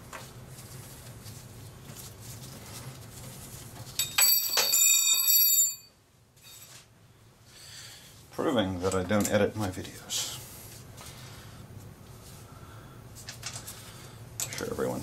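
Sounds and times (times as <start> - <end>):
low steady hum: 0.0 - 15.0
metal tool clattering and ringing: 4.0 - 6.6.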